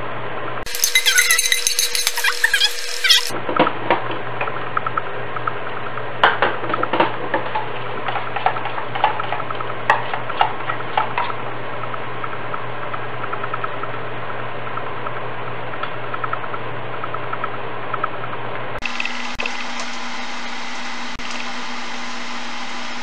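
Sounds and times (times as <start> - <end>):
metal spoon scraping saucepan: 0.7 - 3.3.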